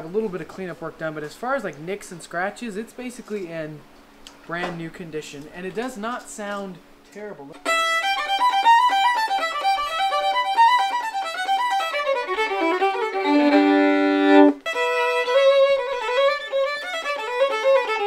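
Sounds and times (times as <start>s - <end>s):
fast fiddle tune: 7.6s - 18.0s.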